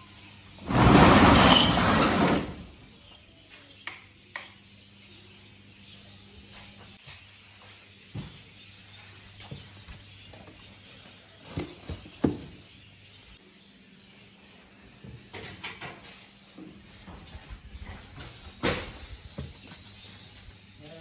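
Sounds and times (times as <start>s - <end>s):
knocks and clatter of stool and stove: 15.1s - 16.0s.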